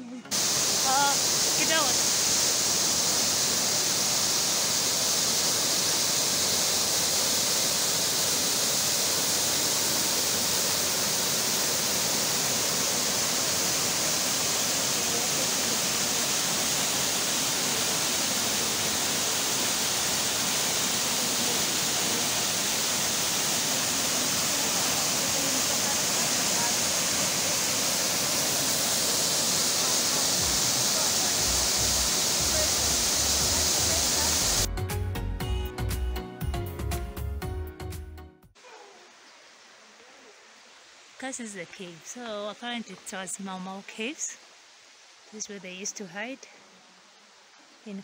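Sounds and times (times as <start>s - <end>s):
waterfall rushing: 0.3s - 34.7s.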